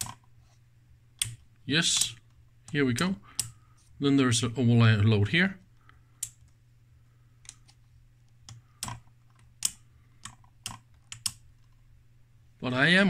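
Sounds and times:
steady low hum: 0:00.0 - 0:13.0
rotary switch clicking: 0:01.2 - 0:01.4.

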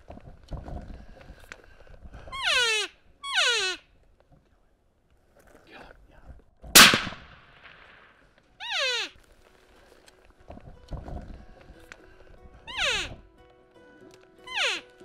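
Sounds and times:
rifle shot with echo: 0:06.8 - 0:08.2
elk mews: 0:08.6 - 0:09.2, 0:12.7 - 0:13.2.

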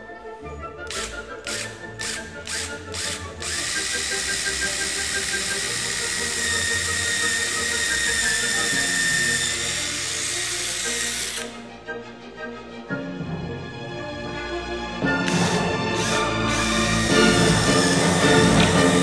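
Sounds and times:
cordless drill whining: 0:00.9 - 0:11.6, 0:15.3 - 0:19.0.

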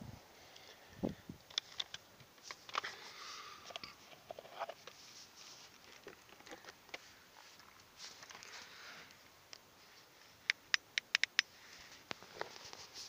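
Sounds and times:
rustling: 0:01.5 - 0:10.5, 0:11.4 - 0:13.0.

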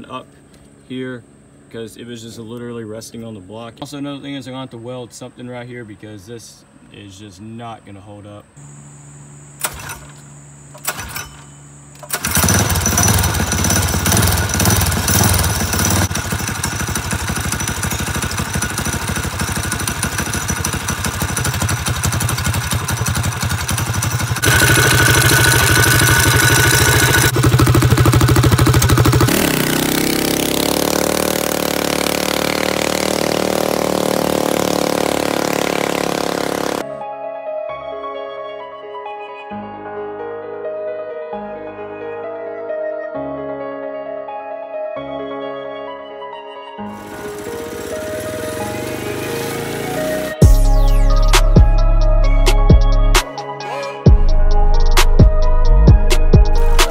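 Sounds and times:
small engine running: 0:09.6 - 0:37.0, 0:46.9 - 0:51.8, 0:56.4 - 0:56.9.

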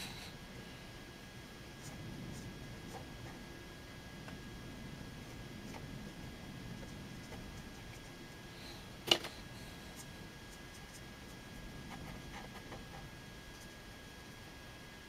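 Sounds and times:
faint steady whine: 0:00.0 - 0:15.0
brush scratching on paper: 0:09.6 - 0:13.8.

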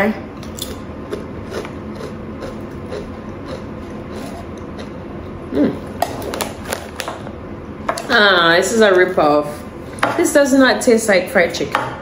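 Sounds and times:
closed-mouth hum: 0:00.0 - 0:10.0
person chewing potato chips: 0:00.4 - 0:07.0.

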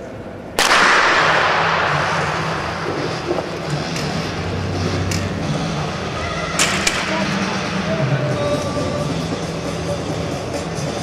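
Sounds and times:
starting gun echo: 0:00.6 - 0:03.7
low steady hum: 0:01.2 - 0:11.0.

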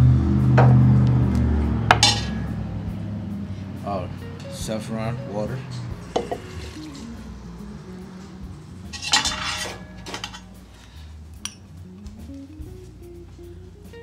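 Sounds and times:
rattling clatter: 0:01.9 - 0:02.8, 0:08.8 - 0:10.6
glass clinking on clay pot: 0:08.9 - 0:10.4.

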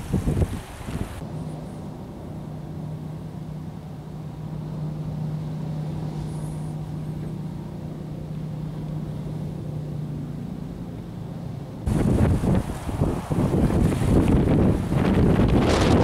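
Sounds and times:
strong wind: 0:00.0 - 0:09.5, 0:11.8 - 0:16.0
low hum: 0:01.2 - 0:16.0
surf breaking against seawall: 0:11.9 - 0:16.0.

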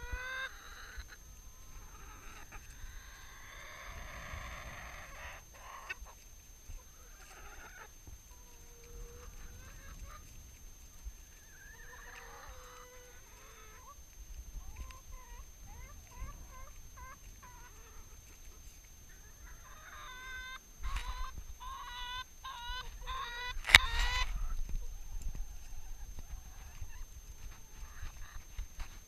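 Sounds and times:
hens squawking loudly: 0:00.0 - 0:06.2, 0:11.4 - 0:14.0, 0:19.1 - 0:24.6
hens clucking: 0:00.0 - 0:29.0.

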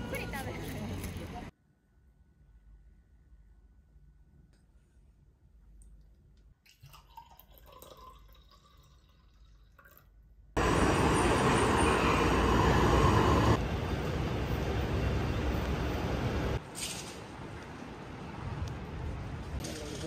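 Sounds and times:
street noise: 0:00.0 - 0:01.5, 0:10.6 - 0:20.0
wine trickling into glass: 0:06.7 - 0:10.0.

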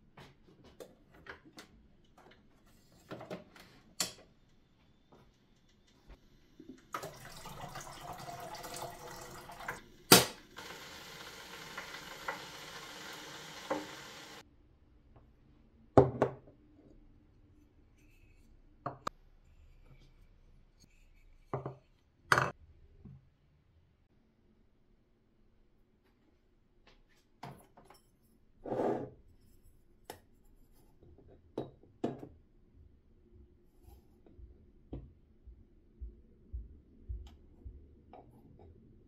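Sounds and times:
water pouring: 0:06.6 - 0:14.4.

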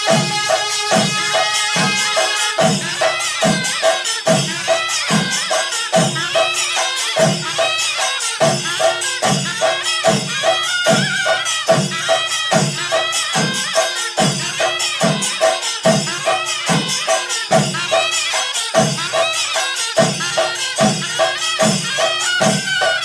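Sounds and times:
drums beating: 0:00.0 - 0:23.0
jingling cymbal strokes: 0:00.0 - 0:23.0
wind instrument melody: 0:00.0 - 0:23.0.

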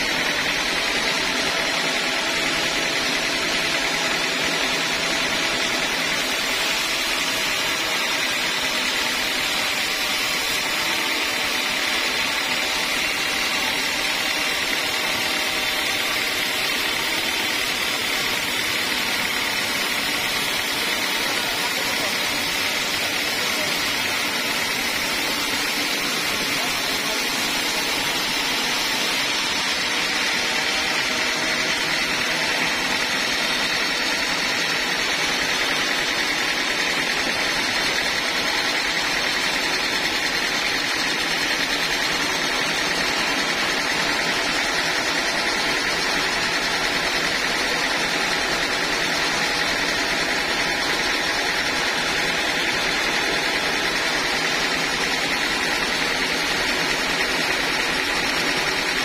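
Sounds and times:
band saw cutting log: 0:00.0 - 0:59.0.

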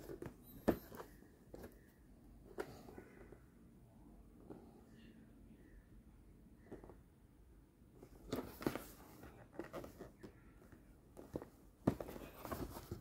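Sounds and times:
cardboard box scraping and tapping: 0:11.2 - 0:13.0.

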